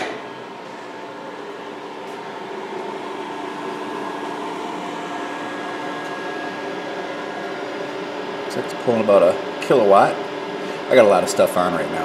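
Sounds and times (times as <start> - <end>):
cooling fan whir: 0.0 - 12.0
steady electrical hum: 0.0 - 12.0.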